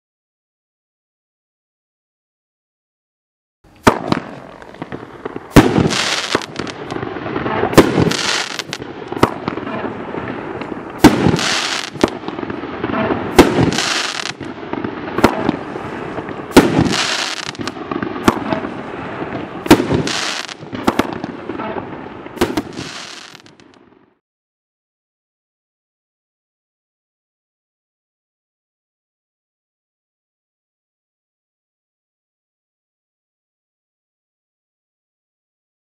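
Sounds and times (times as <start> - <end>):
fireworks bangs: 3.7 - 24.1
fireworks crackling: 3.7 - 24.2.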